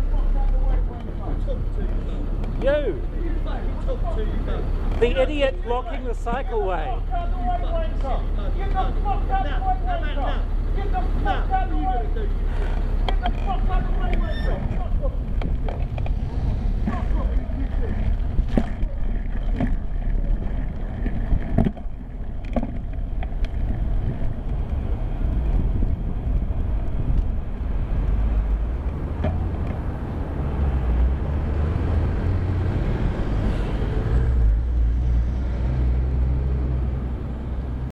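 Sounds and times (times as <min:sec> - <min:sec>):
motor traffic passing: 0:00.0 - 0:37.9
bicycle tyre noise: 0:07.0 - 0:31.9
wind rumbling on microphone: 0:12.2 - 0:37.9.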